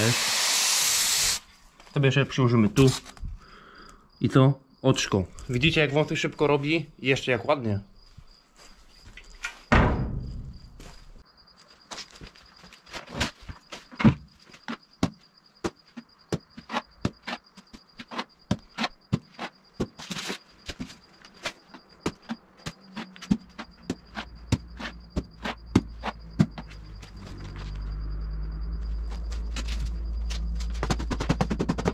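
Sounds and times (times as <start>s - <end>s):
crickets chirping: 0.0s - 31.9s
trowel knocking: 22.0s - 26.8s.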